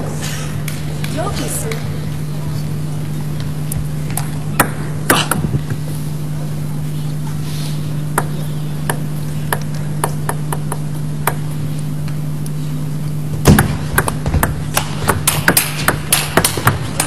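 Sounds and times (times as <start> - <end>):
ping pong ball clicking: 8.2 - 11.5, 13.6 - 17.0.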